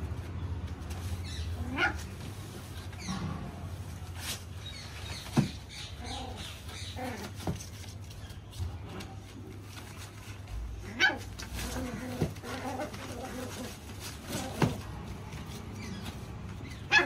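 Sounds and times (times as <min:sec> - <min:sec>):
puppy whining and yipping: 0:16.6 - 0:17.0.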